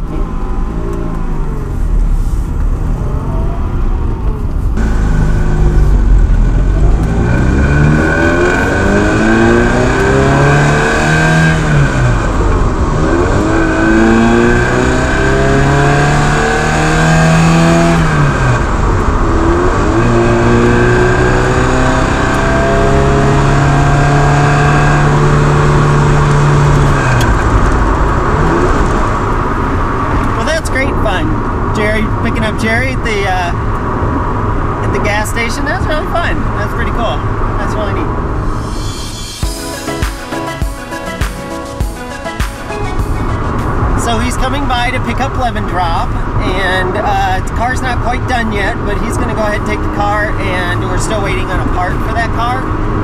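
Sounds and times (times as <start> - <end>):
car engine accelerating: 0.0 - 41.2
road and tyre noise: 0.0 - 53.0.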